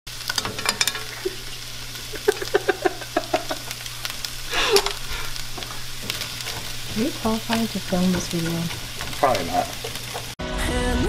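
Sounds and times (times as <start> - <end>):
vegetables sizzling in frying pan: 0.1 - 10.4
spatula scraping pan: 3.3 - 10.4.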